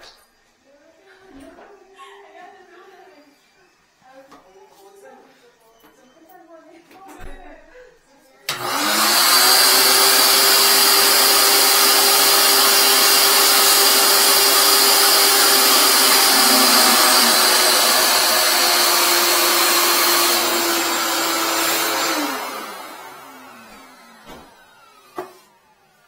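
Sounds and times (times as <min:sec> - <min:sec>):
shop vacuum motor whine: 0:08.5 - 0:26.0
vacuum sucking water: 0:08.6 - 0:23.3.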